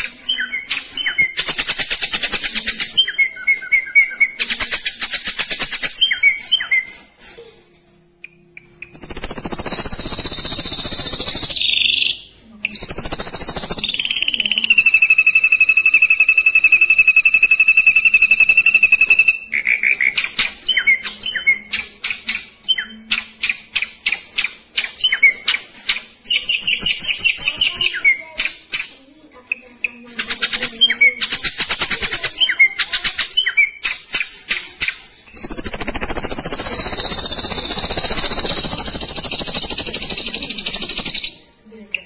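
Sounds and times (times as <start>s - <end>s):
bird singing: 0.0s - 5.1s, 8.3s - 24.2s, 35.3s - 42.0s.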